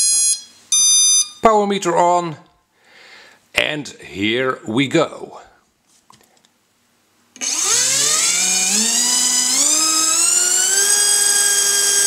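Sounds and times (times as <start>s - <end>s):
electric motor propeller whine: 7.4s - 12.0s.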